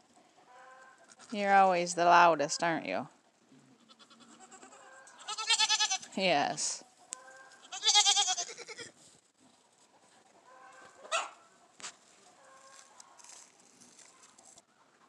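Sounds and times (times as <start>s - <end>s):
goat bleating: 3.8s - 6.2s, 7.4s - 9.0s.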